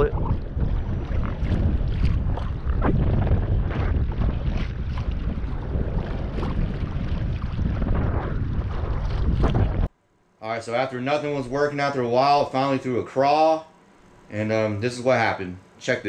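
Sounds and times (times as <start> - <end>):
waves slapping against hull: 0.0 - 9.9
wind buffeting microphone: 0.0 - 9.9.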